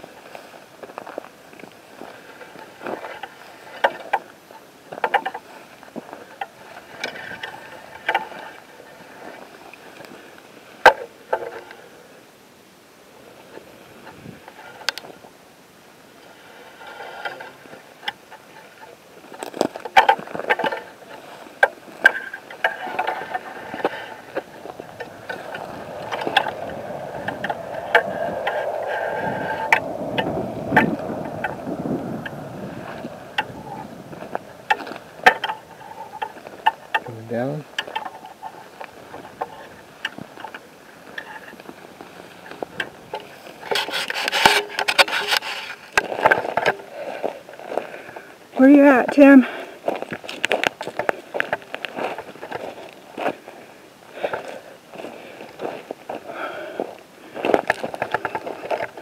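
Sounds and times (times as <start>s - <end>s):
footsteps on rocky ground: 19.2s - 43.7s, 45.7s - 59.0s
steady rushing noise: 20.8s - 56.6s
brush scraping past: 22.2s - 36.9s.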